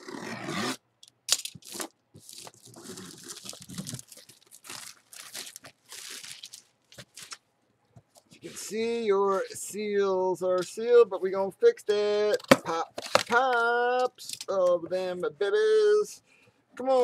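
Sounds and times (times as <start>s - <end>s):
plastic shrink-wrap tearing: 1.6s - 7.4s.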